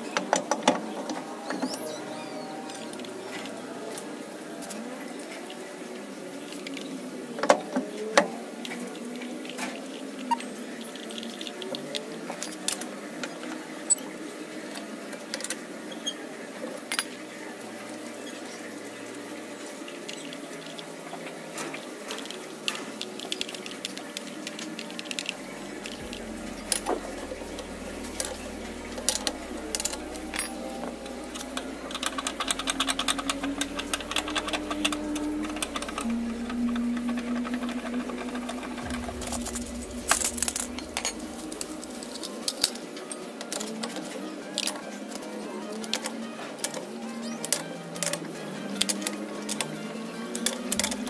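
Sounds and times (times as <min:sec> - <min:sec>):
fast mechanical clicking: 0:22.1 - 0:42.7.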